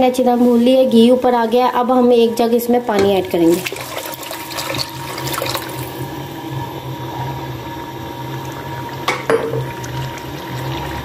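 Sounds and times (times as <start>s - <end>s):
food sizzling and bubbling: 2.2s - 11.0s
spoon knocking on pan: 9.1s - 9.7s.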